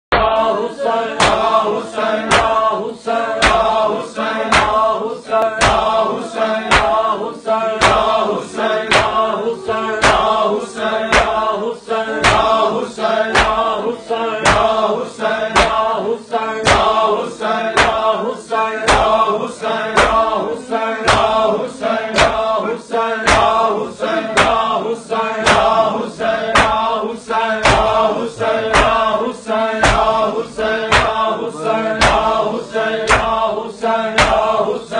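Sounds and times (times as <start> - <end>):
men chanting in unison: 0.1 - 34.9
hands slapping chests: 1.2 - 1.5, 2.2 - 2.6, 3.4 - 3.7, 4.5 - 4.8, 5.4 - 5.9, 6.7 - 7.0, 7.8 - 8.2, 8.9 - 9.2, 10.0 - 10.4, 11.1 - 11.4, 12.2 - 12.6, 13.3 - 13.7, 14.4 - 14.8, 15.5 - 15.8, 16.6 - 17.0, 17.7 - 18.1, 18.9 - 19.1, 19.9 - 20.2, 21.1 - 21.4, 22.1 - 22.5, 23.2 - 23.6, 24.3 - 24.6, 25.4 - 25.8, 26.5 - 26.9, 27.6 - 28.0, 28.7 - 29.1, 29.8 - 30.2, 30.8 - 31.3, 32.0 - 32.4, 33.0 - 33.4, 34.2 - 34.6.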